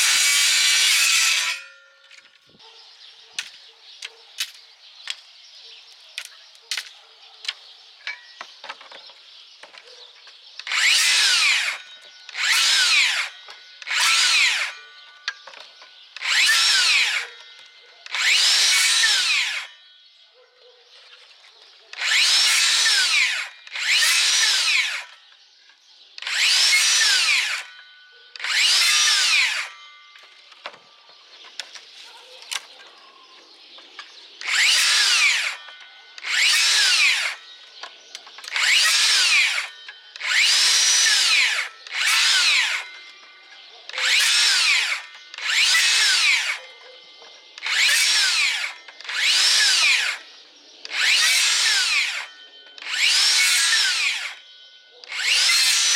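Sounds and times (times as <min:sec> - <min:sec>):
circular saw whining in bursts: 0:00.0 - 0:01.8, 0:10.6 - 0:15.1, 0:16.2 - 0:19.8, 0:22.0 - 0:25.2, 0:26.2 - 0:30.4, 0:34.4 - 0:37.8, 0:38.4 - 0:43.4, 0:44.0 - 0:46.6, 0:47.6 - 0:55.9.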